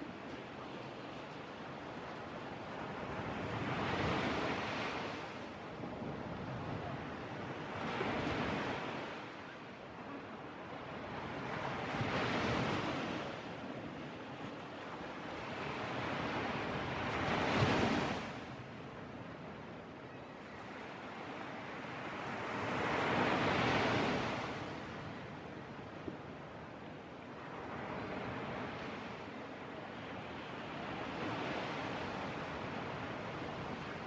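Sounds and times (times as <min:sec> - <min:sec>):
waves breaking on shore: 0:00.0 - 0:19.1.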